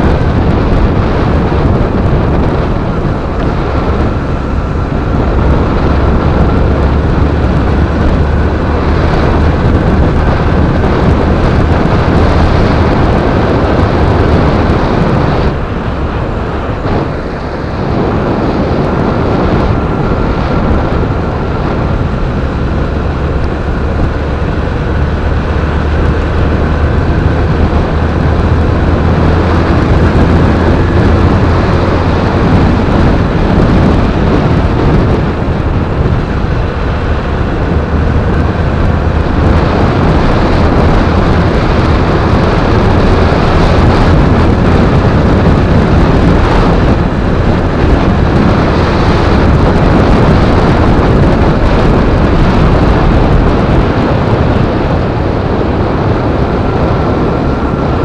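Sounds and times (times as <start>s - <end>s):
motorcycle engine running: 0.0s - 58.0s
wind noise on microphone: 0.0s - 58.0s.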